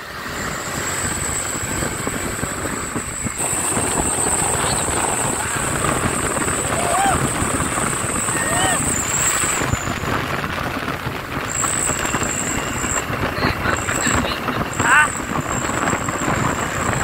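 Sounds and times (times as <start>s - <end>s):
truck engine and tyres rolling past: 0.0s - 17.0s
thin high whine: 0.2s - 17.0s
people's voices: 4.4s - 7.5s, 8.2s - 9.1s, 13.2s - 15.9s
brief rising call: 6.4s - 7.5s, 8.2s - 9.6s.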